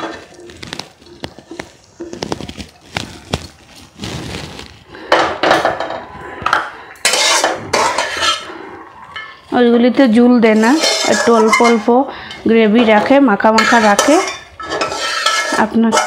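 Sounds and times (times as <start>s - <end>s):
metal spatula scraping wok: 3.9s - 9.6s, 10.4s - 16.0s.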